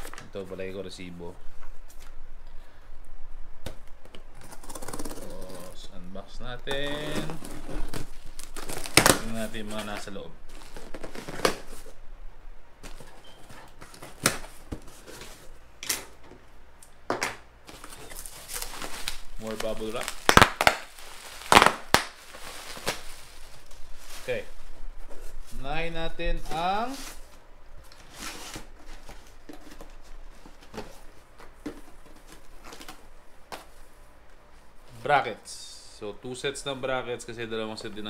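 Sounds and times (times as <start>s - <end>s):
packaging rustling in cardboard box: 6.8s - 12.0s, 17.6s - 25.6s, 26.4s - 33.7s.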